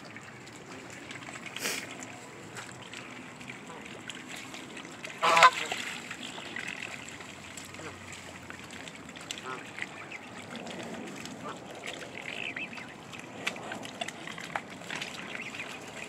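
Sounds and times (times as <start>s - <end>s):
goose honk: 5.2s - 5.8s.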